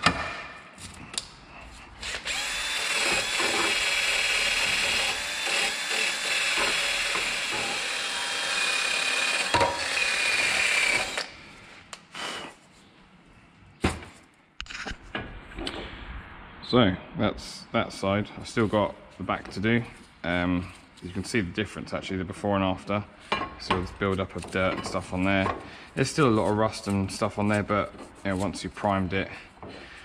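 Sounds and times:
drill motor whining: 2.0 - 11.3.

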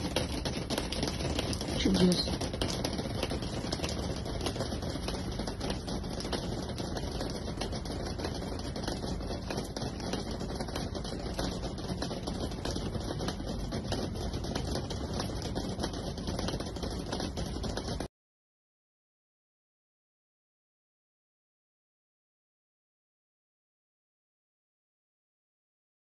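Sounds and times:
wet snow falling on branches: 0.0 - 18.0.

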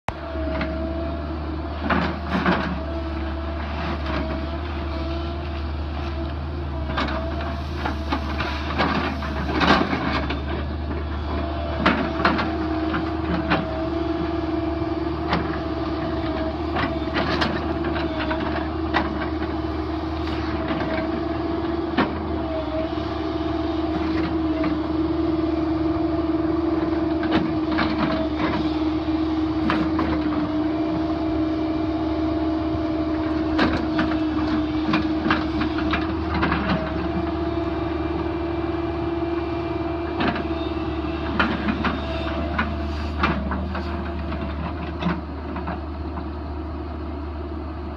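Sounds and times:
excavator diesel engine running: 0.1 - 47.9.

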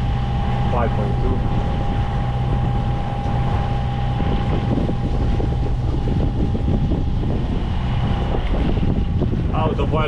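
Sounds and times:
boat diesel engine running: 0.0 - 10.0
wind buffeting microphone: 0.0 - 10.0.

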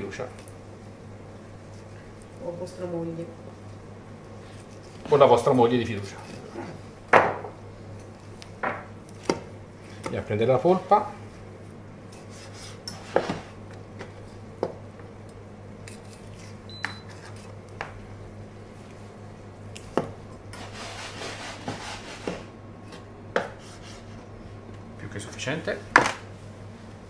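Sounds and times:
steady low hum: 0.0 - 27.0
knife on plastic cutting board: 20.5 - 24.2.

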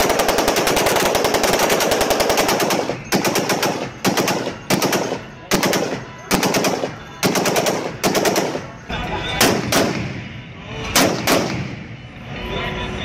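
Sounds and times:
machine guns firing bursts: 0.0 - 8.8, 11.0 - 11.7.

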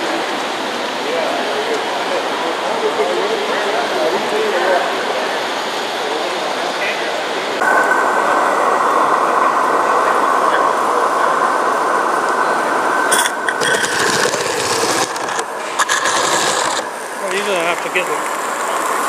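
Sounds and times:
steam locomotive hissing: 7.6 - 19.0
steam engine chuffing with clicks: 13.1 - 18.7.

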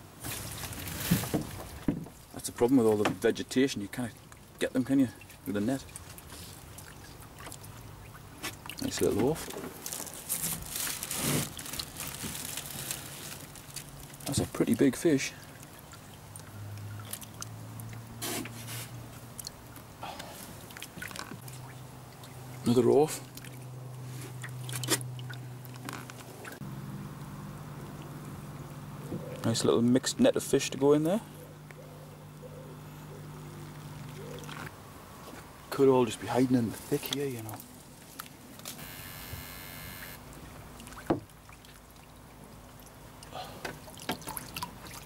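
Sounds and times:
water splashes: 0.1 - 26.6, 33.5 - 34.8, 36.2 - 45.0
landing net moving through water: 0.2 - 1.9, 5.9 - 26.6
steady low hum: 21.4 - 35.8
brief high buzz: 38.8 - 40.2.

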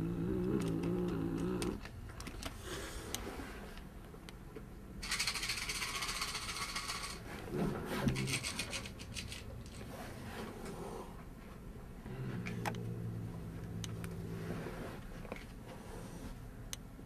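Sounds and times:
cat growling: 0.0 - 1.9.

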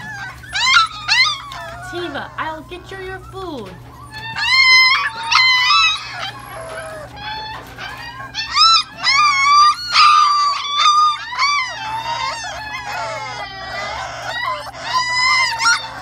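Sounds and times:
puppies whining and yelping: 0.0 - 16.0.

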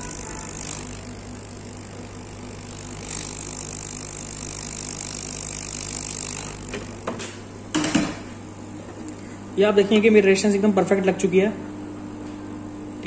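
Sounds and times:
hot-air station hissing: 0.0 - 10.2.

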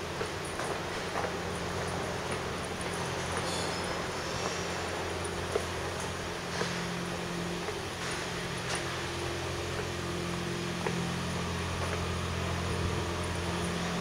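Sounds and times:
low mechanical hum: 0.0 - 14.0
faint ticking footsteps: 0.1 - 9.0, 9.6 - 14.0.

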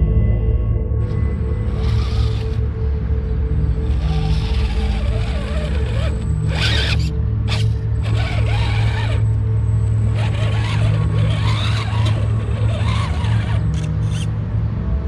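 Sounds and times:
toy car motor whining and grinding: 1.6 - 2.7, 3.8 - 14.3.

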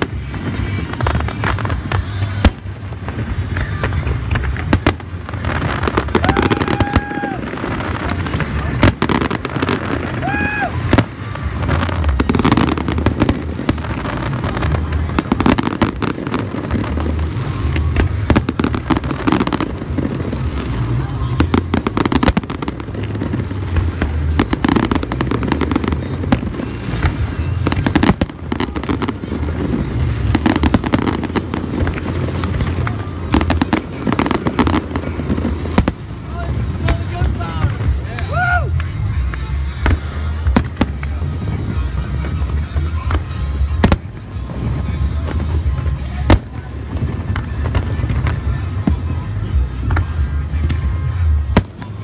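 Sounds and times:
deep fireworks booms: 0.0 - 52.0
fireworks bangs and crackles: 0.0 - 52.0.

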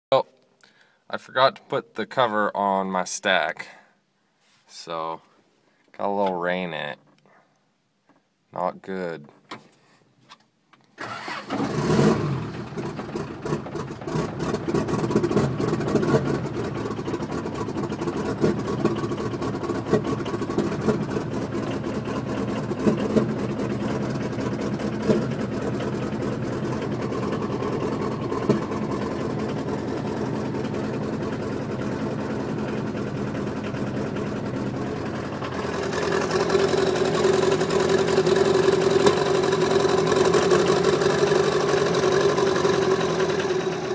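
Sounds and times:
diesel engine cranking and running: 11.0 - 43.9
sharp engine knocks: 17.3 - 21.8, 22.6 - 23.6, 28.2 - 29.6.

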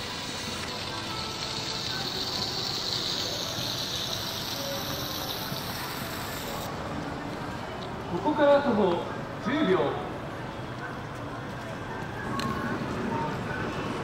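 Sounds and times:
city street noise: 0.0 - 14.0.

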